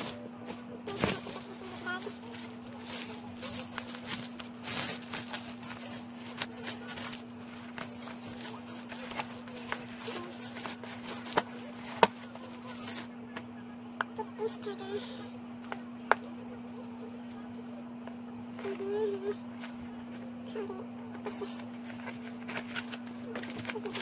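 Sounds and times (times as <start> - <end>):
plastic sleeve rustling: 0.0 - 13.1, 21.3 - 24.0
steady low hum: 0.0 - 24.0.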